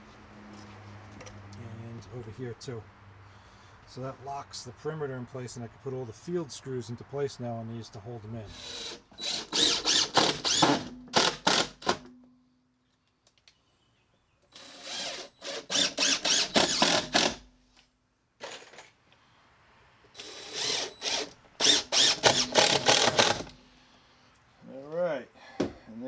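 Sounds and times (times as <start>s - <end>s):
impact driver hammering screws: 8.5s - 12.1s, 14.6s - 17.5s, 20.2s - 23.6s.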